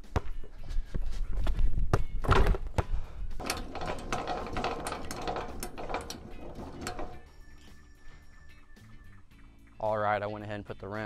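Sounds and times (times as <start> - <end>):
basketball bouncing on asphalt: 0.0 - 0.5, 1.9 - 3.0
rattling sound: 3.4 - 7.9.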